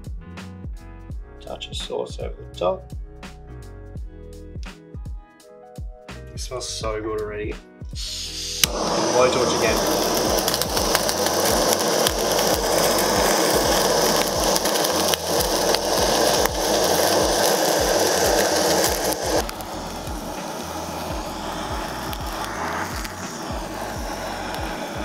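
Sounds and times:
blowtorch flame hissing: 8.0s - 25.0s.

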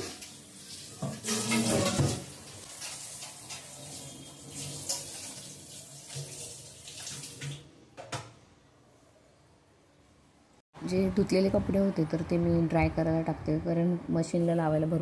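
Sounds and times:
tap water running and splashing: 0.0s - 7.7s.

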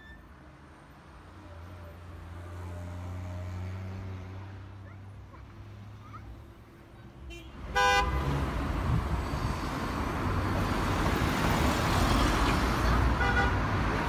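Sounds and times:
cars driving past: 0.6s - 14.0s
car horn toot: 7.3s - 8.3s, 13.2s - 13.6s.

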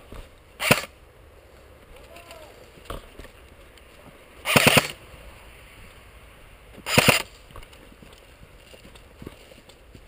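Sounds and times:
airsoft rifle burst firing: 0.6s - 0.9s, 4.4s - 5.0s, 6.9s - 7.3s.

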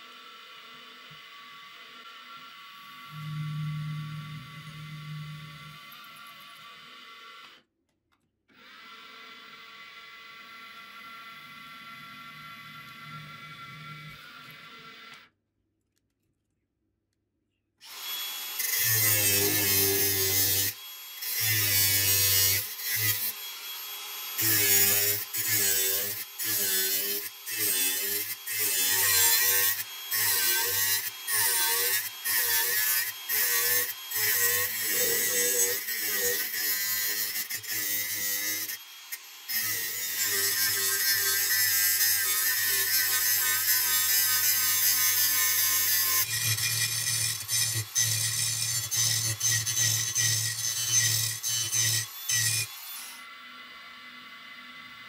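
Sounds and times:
angle grinder grinding brass: 2.8s - 6.6s, 17.8s - 54.9s.

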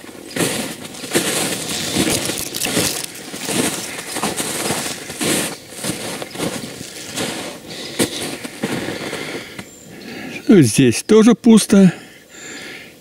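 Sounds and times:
footsteps crunching in snow: 0.0s - 9.7s.

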